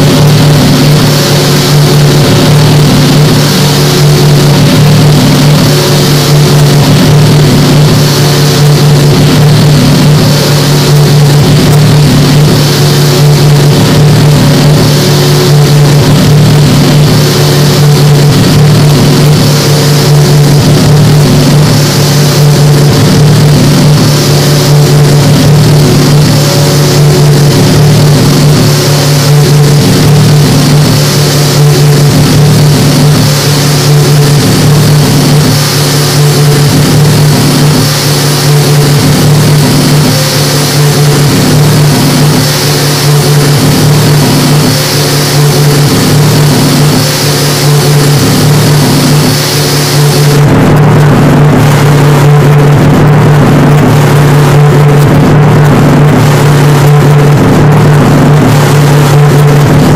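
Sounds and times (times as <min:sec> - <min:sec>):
hissing noise wash: 0:00.0 - 0:59.9
low hum tones: 0:00.0 - 0:59.9.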